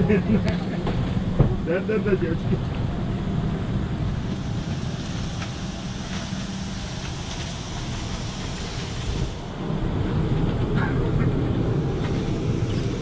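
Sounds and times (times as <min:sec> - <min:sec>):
cabin ventilation air rushing: 0:00.0 - 0:13.0
low hum: 0:00.0 - 0:13.0.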